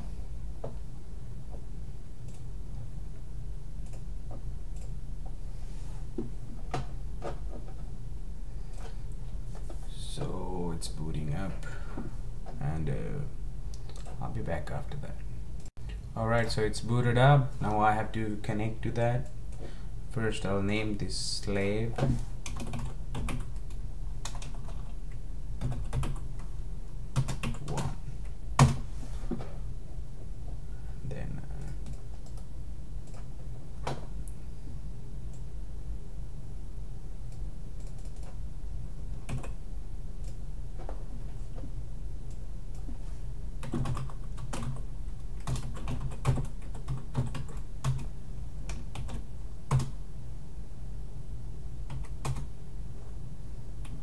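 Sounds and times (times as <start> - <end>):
keyboard typing: 13.8 - 14.2, 21.9 - 25.0, 25.6 - 26.5, 27.1 - 28.0, 37.8 - 38.4, 39.2 - 39.6, 43.6 - 48.1, 48.7 - 50.0, 51.9 - 52.5.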